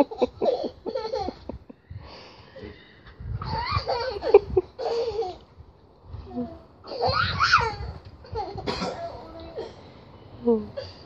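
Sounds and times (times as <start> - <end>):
high-pitched laughter: 3.4 - 5.4.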